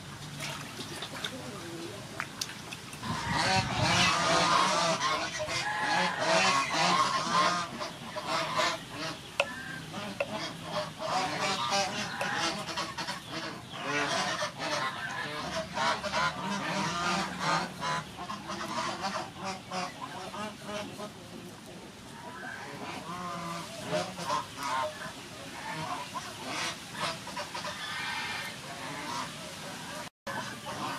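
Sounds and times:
many birds calling: 3.0 - 21.2.

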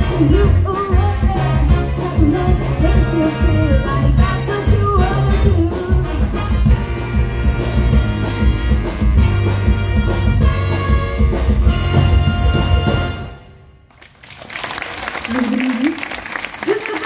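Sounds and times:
wind band playing upbeat brass music: 0.0 - 13.7
drum beat: 6.7 - 13.2.

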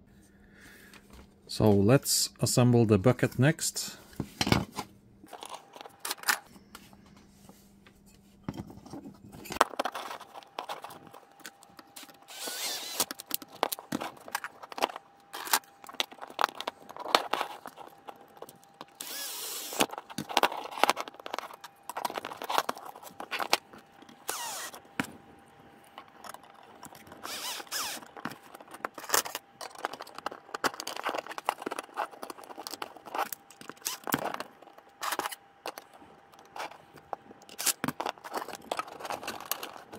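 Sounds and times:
plastic parts clicking and rattling: 8.5 - 39.9.

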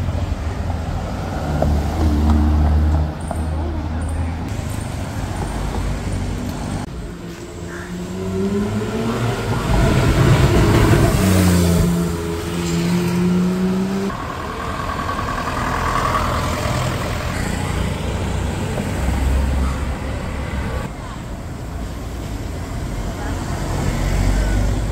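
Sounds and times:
traffic noise: 0.0 - 24.9
car engine accelerating: 7.3 - 20.9.

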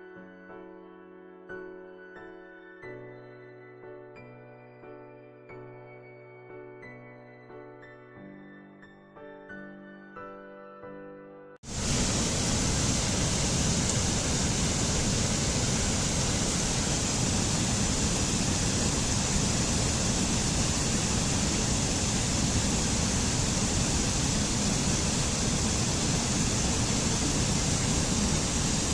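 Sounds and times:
stream rushing over boulders: 11.7 - 28.9.

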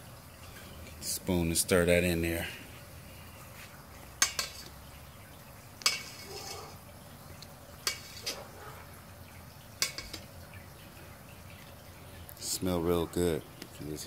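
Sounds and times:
hiss of rolling boil: 0.0 - 9.2.

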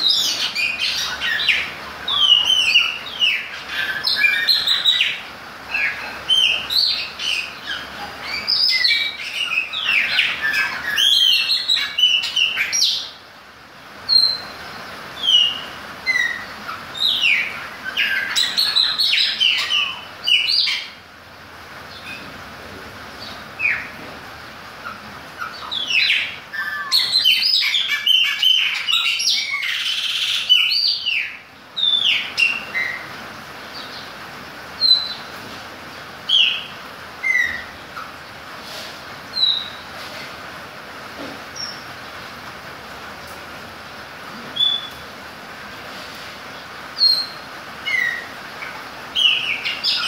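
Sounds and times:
bird whistling song: 0.0 - 5.2, 5.8 - 13.1, 14.1 - 14.6, 15.2 - 21.0, 25.4 - 33.1, 34.8 - 35.3, 36.3 - 37.8, 39.3 - 39.9, 44.6 - 45.0, 47.0 - 50.0.

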